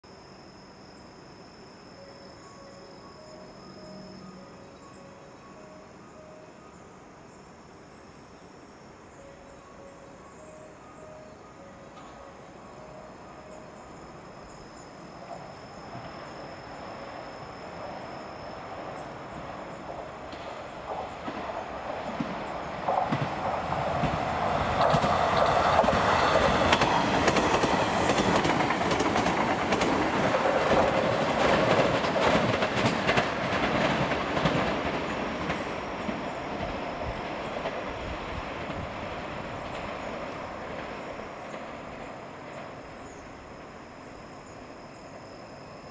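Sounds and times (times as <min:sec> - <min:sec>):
train wheels clattering over rail joints: 0:19.4 - 0:43.0.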